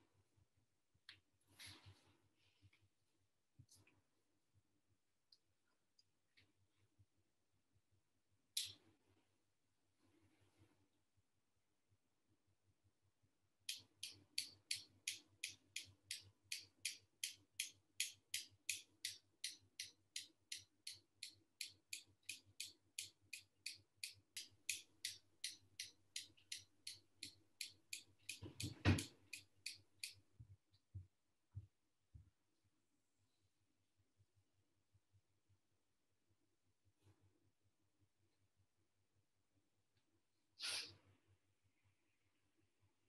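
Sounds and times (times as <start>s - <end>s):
steady sharp ticking: 13.7s - 28.4s, 29.0s - 30.3s.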